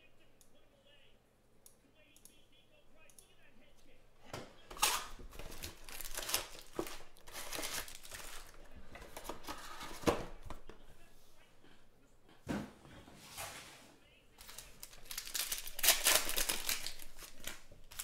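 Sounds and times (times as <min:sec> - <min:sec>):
foil card packs crinkling: 0:04.7 - 0:10.6, 0:14.4 - 0:18.0.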